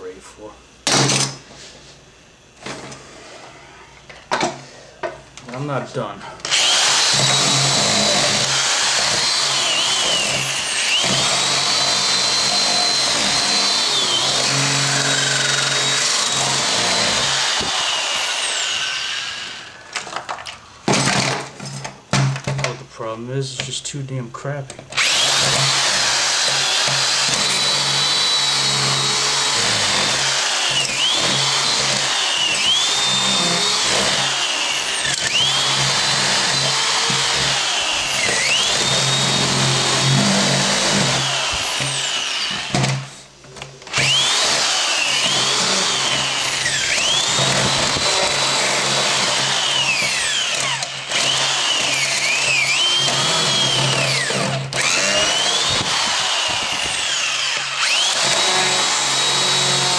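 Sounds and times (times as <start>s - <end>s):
cordless drill boring into plastic: 6.4s - 20.0s, 24.9s - 43.0s, 43.9s - 59.9s.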